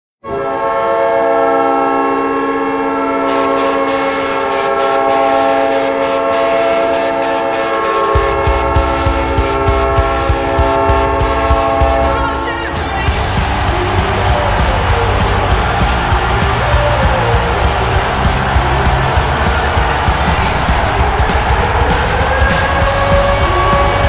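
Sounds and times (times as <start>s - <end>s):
deep air horn blast: 0.2s - 24.0s
crowd cheering: 1.6s - 24.0s
heavy drumbeat: 8.2s - 24.0s.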